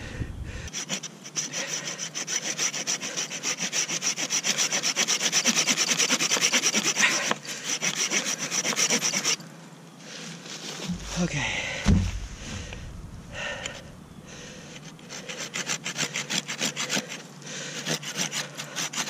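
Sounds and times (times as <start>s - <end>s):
saw cutting through a branch: 0.7s - 9.4s, 14.8s - 19.0s.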